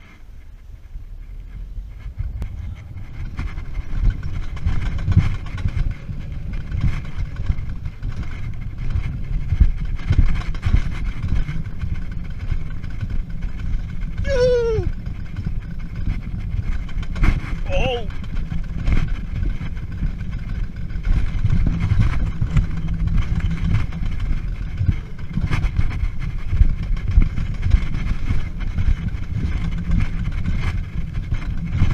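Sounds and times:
coaster sled rumbling on metal rails: 0:00.0 - 0:31.9
person whooping: 0:14.2 - 0:14.9.

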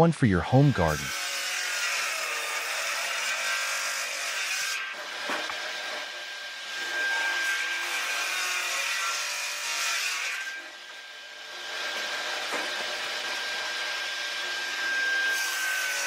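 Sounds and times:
saw rasping through logs: 0:00.4 - 0:06.1, 0:06.8 - 0:10.6, 0:14.5 - 0:16.0.

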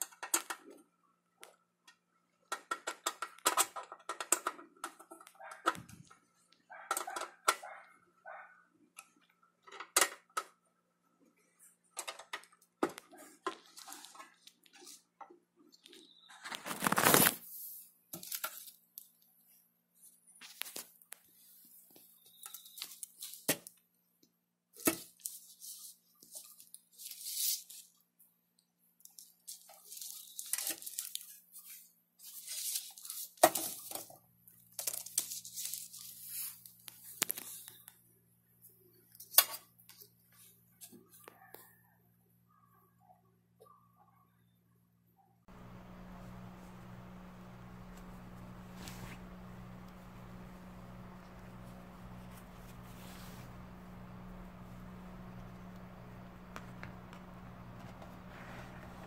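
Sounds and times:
paper rustling: 0:16.3 - 0:17.7, 0:29.5 - 0:34.0, 0:45.5 - 0:59.0.

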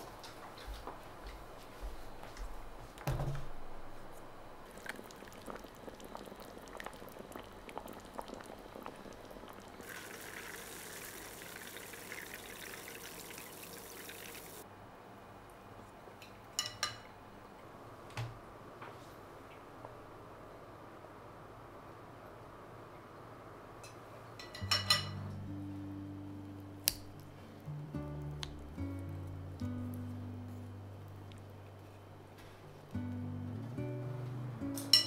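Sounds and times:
broth pouring: 0:04.6 - 0:14.6.

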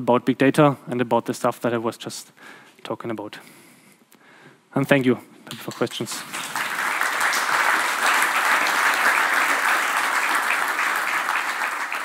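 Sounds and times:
audience applauding: 0:05.7 - 0:12.0.

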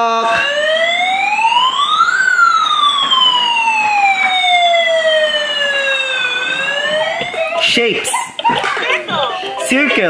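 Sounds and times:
toy siren wailing: 0:00.0 - 0:07.7.

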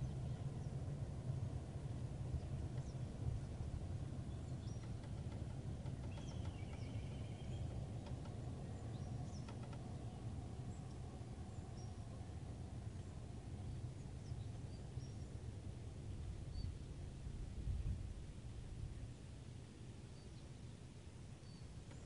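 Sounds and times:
faint bird chirps: 0:04.2 - 0:12.1, 0:21.4 - 0:22.0.

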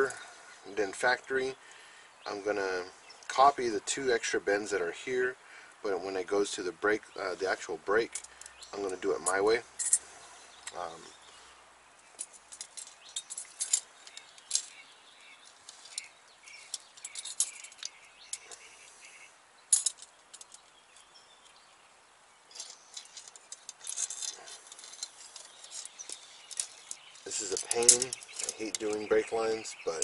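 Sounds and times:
metallic clicks and clinks: 0:08.1 - 0:10.8, 0:12.2 - 0:14.8, 0:15.7 - 0:18.7, 0:19.7 - 0:20.7, 0:22.5 - 0:29.3.

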